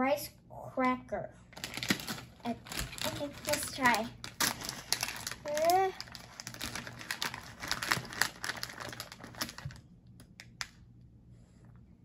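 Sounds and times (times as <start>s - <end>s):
plastic snack bag crinkling: 1.5s - 10.7s.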